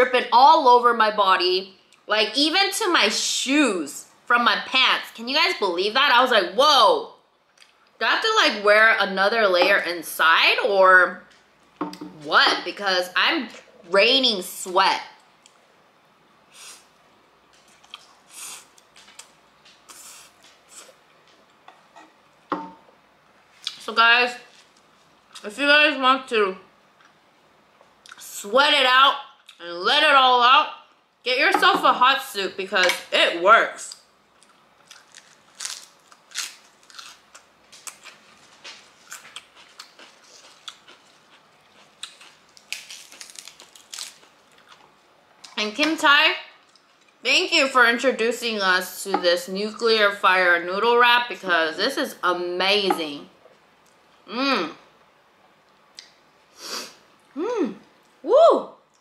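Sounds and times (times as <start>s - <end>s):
lettuce being chewed: 17.6s - 21.0s, 34.4s - 45.0s
lettuce leaves crackling: 34.8s - 41.3s, 42.0s - 44.8s
chewing with wet mouth clicks: 37.8s - 42.4s.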